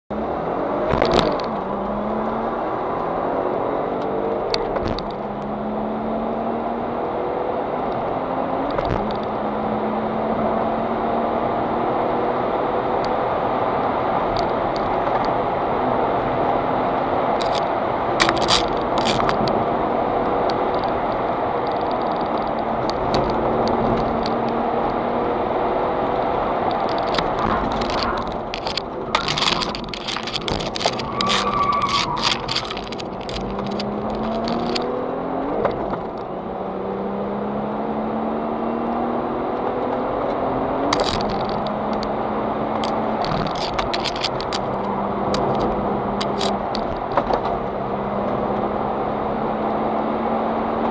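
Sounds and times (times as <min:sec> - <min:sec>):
car engine accelerating hard: 0:00.1 - 0:50.9
sharp clicks and rattles: 0:00.9 - 0:02.4, 0:04.5 - 0:05.5, 0:08.6 - 0:09.3, 0:17.4 - 0:25.0, 0:26.0 - 0:35.0, 0:35.6 - 0:36.3, 0:39.6 - 0:48.4.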